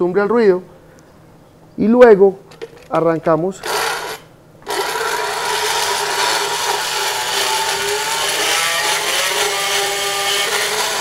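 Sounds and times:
dental float motor whine: 3.6 - 11.0
rasping grind on teeth: 3.6 - 11.0.

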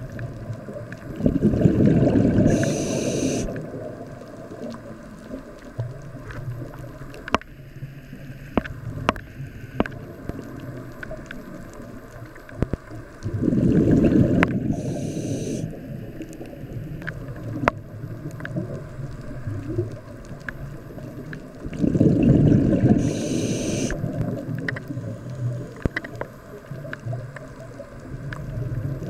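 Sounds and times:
exhaled bubbles underwater: 0.0 - 7.4, 8.1 - 29.0
regulator inhale hiss: 2.4 - 3.6, 14.5 - 15.9, 22.9 - 24.1.

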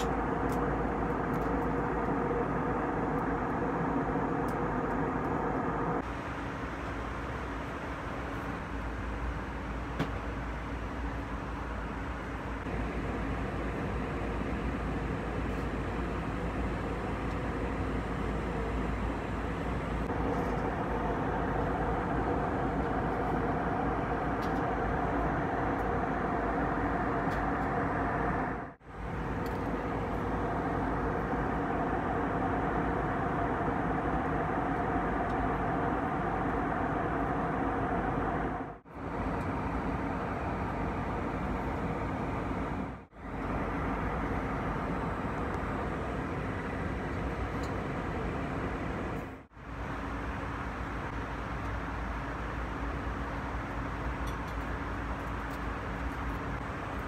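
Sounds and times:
faint steady hum: 0.0 - 57.0
jet airliner engine noise: 0.0 - 57.0.

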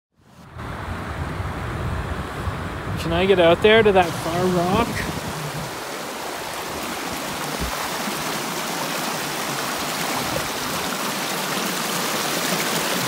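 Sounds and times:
stream rushing over rocks: 2.7 - 13.0.

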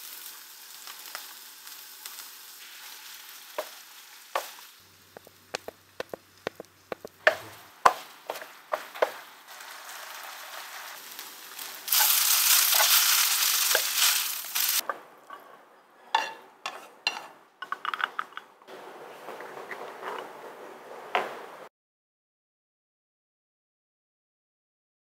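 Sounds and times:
noodles sizzling in a hot pan: 0.0 - 14.8.

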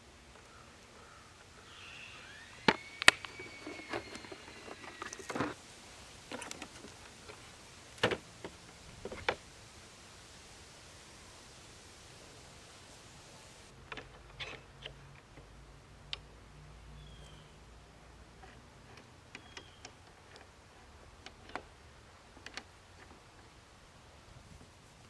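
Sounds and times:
thin rising tone: 1.7 - 5.5.

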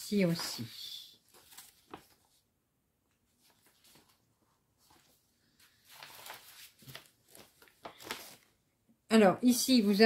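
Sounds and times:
paper rustling: 0.0 - 2.5, 3.1 - 8.6.

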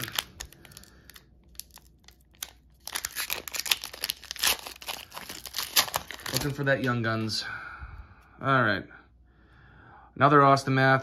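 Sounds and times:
foil wrapper crinkling and tearing: 0.0 - 7.3.

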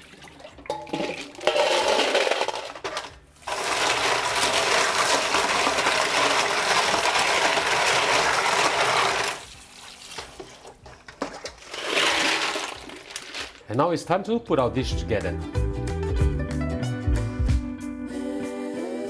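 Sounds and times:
water poured into a sink: 0.0 - 1.8, 3.4 - 13.4.

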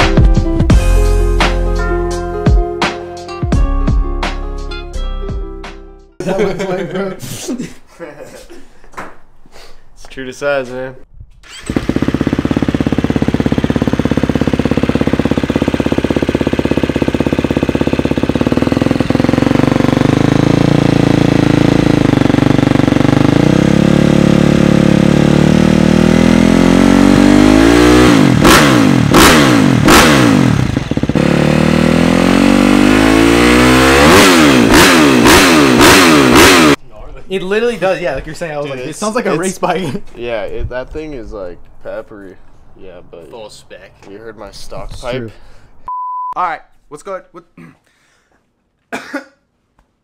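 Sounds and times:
dirt bike engine idling and revving: 11.4 - 36.8
sharp throttle blips: 11.4 - 36.8.

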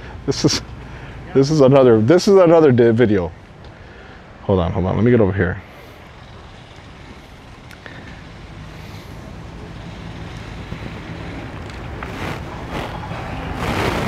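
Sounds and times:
engine idling: 5.6 - 14.0
wind on microphone: 10.1 - 14.0.

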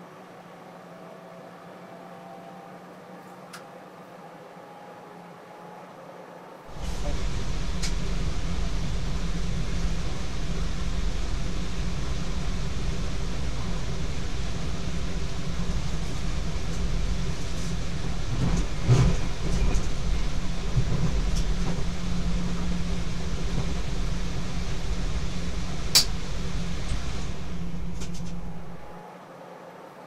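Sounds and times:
train wheels rumbling: 6.7 - 29.0.

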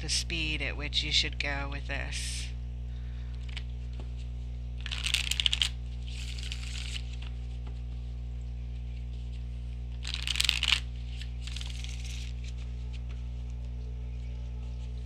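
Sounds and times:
steady low hum: 0.0 - 15.0
cards being shuffled: 3.4 - 13.8.

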